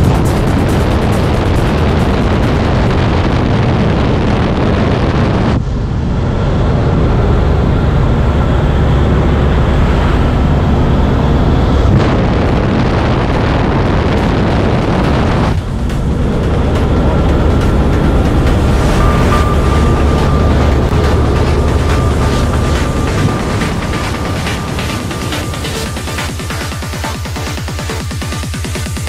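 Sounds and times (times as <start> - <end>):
aircraft engine: 0.0 - 29.0
rushing wind: 0.0 - 29.0.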